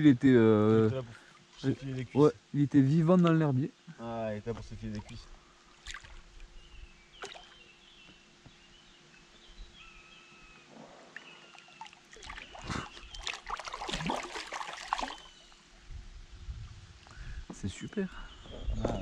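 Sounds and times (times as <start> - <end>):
water splashing and sloshing: 4.5 - 6.6, 7.2 - 7.6, 11.1 - 15.7.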